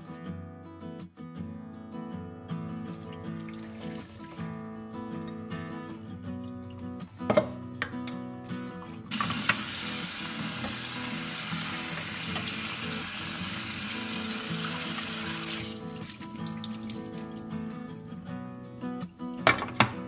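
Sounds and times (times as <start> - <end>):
acoustic guitar music: 0.0 - 20.0
tap water running into strainer: 2.9 - 4.7, 9.1 - 17.6.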